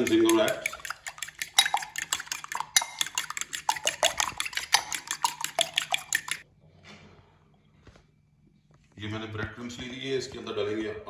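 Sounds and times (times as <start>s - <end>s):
fork clinking against glass bowl: 0.0s - 6.4s.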